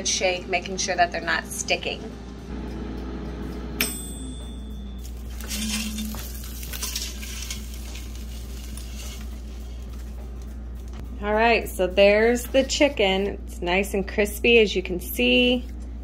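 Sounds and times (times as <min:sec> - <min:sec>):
metal basket clink: 0:03.8 - 0:09.3.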